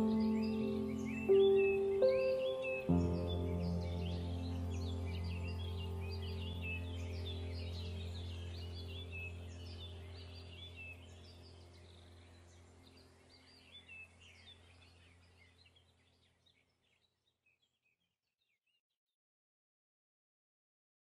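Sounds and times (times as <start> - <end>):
low steady hum: 0.0 - 16.2
faint birds chirping: 0.0 - 18.7.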